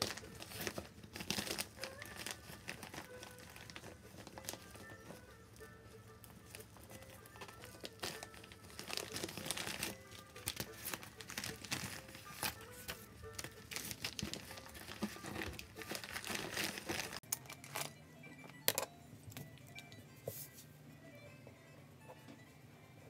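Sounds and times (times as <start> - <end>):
paper rustling and crinkling: 0.0 - 5.6, 6.4 - 17.9
quiet background music: 0.0 - 23.0.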